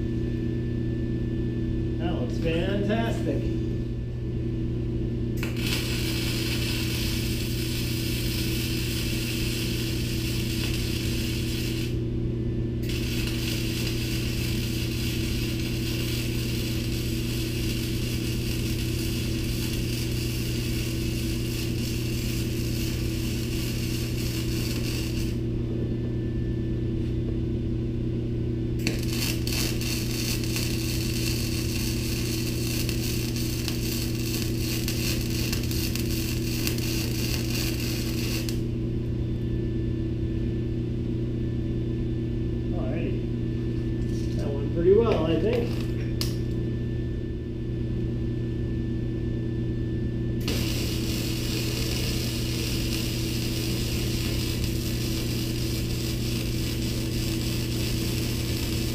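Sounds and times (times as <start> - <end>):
steady electrical hum: 0.0 - 58.9
welding arc crackling and hissing: 5.4 - 12.1, 12.8 - 25.6, 28.8 - 38.8, 44.1 - 46.6, 50.4 - 58.9.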